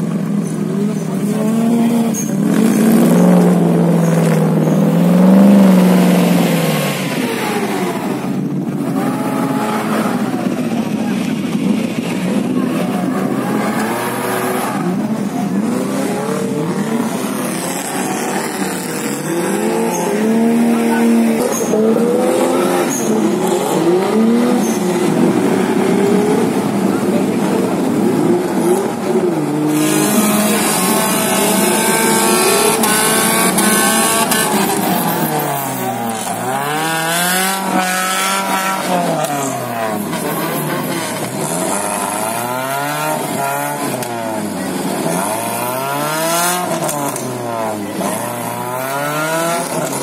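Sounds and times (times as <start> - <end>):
off-road engines revving: 0.0 - 50.0
onlookers' voices: 0.0 - 50.0.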